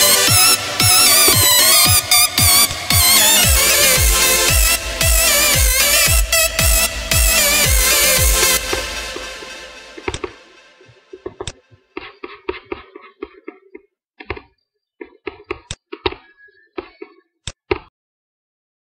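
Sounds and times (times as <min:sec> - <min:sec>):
electronic beat: 0:00.0 - 0:12.1.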